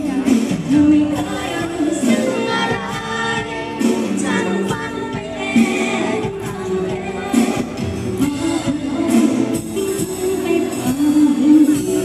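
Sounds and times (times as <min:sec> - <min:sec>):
live band music with singing: 0:00.0 - 0:12.0.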